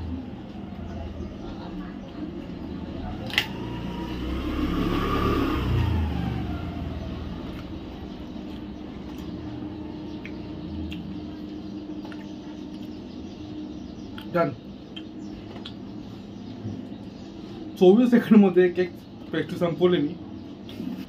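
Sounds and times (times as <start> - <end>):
vehicle engine passing by: 0.0 - 12.1
steady low hum: 0.0 - 21.0.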